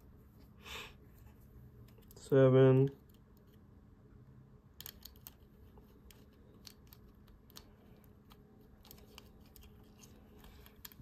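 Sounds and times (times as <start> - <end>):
wires clicking and rustling: 1.2 - 3.7, 4.7 - 11.0.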